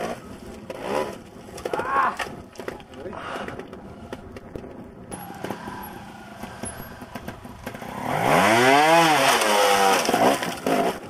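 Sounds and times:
motorcycle engine revving: 4.8s - 11.0s.

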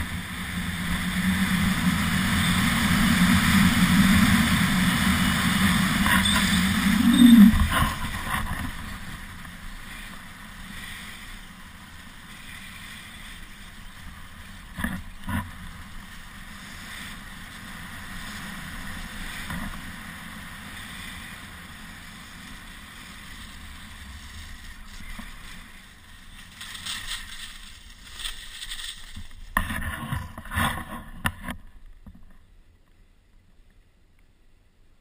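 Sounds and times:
skis sliding over snow: 0.0s - 32.1s.

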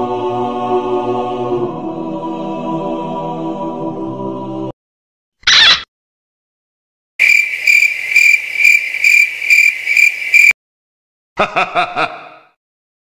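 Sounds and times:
cricket chirping: 7.2s - 10.6s
person laughing: 11.4s - 12.6s.

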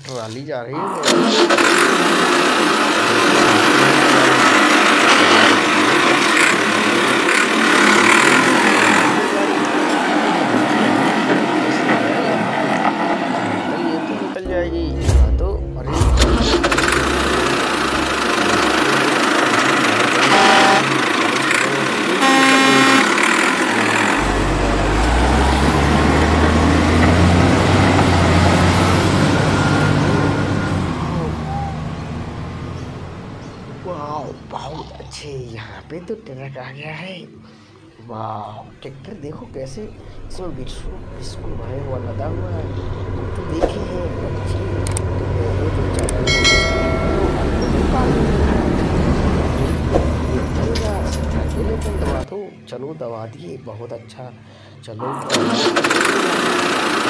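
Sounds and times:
toy tractor grinding whirr: 1.0s - 10.0s, 16.3s - 28.6s, 55.2s - 57.0s
heavy vehicle engine rumble: 1.1s - 34.7s, 39.5s - 52.3s
horn-like electronic tone: 20.2s - 21.0s, 21.6s - 25.2s.

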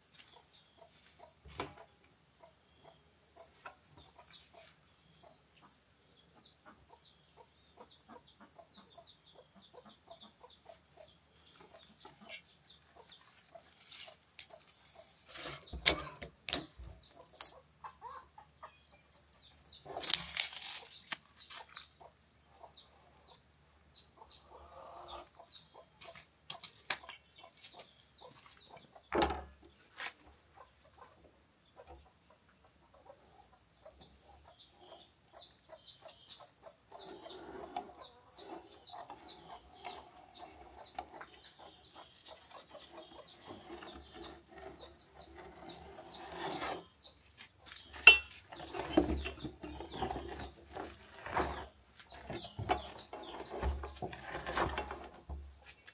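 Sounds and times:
chickens clucking: 0.2s - 15.2s, 17.0s - 20.0s, 24.2s - 29.1s, 30.3s - 45.4s.

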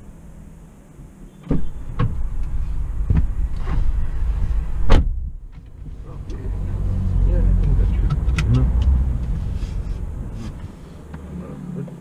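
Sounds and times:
car engine rumble and drone: 0.0s - 12.0s.

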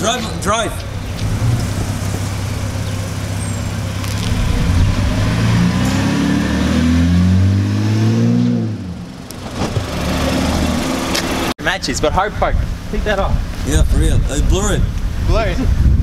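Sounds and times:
car engine accelerating past: 3.4s - 11.5s.

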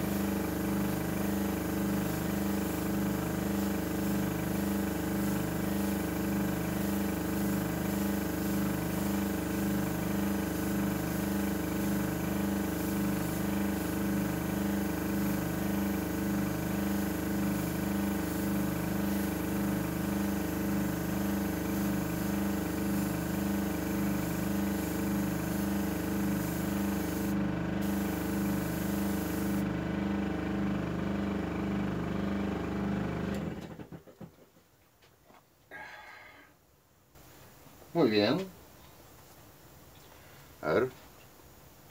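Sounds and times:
air hissing from airbrush: 0.0s - 29.6s
airbrush compressor motor hum: 1.6s - 29.7s.

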